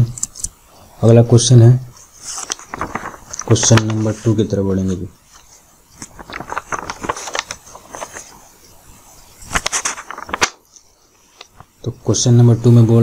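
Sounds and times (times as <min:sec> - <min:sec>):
rustling: 0:02.0 - 0:04.5, 0:05.2 - 0:11.8.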